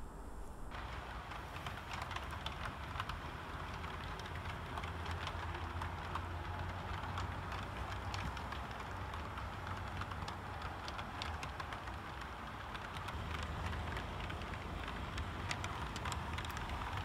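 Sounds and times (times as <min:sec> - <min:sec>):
low steady hum: 0:00.0 - 0:01.6
model train wheels rolling on rail: 0:00.7 - 0:17.0.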